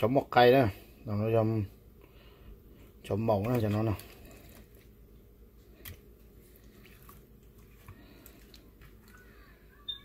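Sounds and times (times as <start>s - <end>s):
low steady hum: 0.0s - 10.0s
wet squishes: 2.8s - 9.4s.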